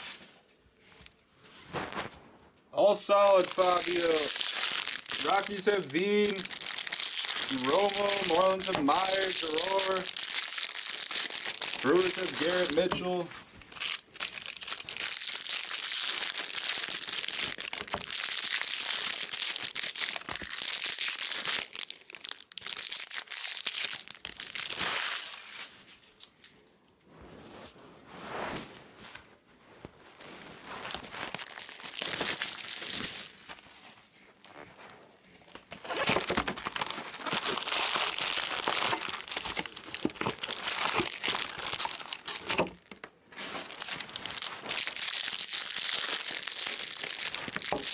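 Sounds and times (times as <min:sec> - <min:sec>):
foil wrappers tearing and crinkling: 0:03.1 - 0:26.3, 0:30.5 - 0:34.1, 0:35.4 - 0:47.9.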